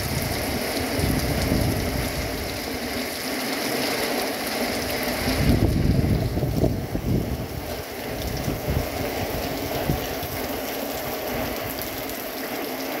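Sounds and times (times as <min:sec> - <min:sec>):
wind buffeting microphone: 0:00.0 - 0:02.8, 0:04.8 - 0:12.2
heavy rain patter: 0:00.0 - 0:13.0.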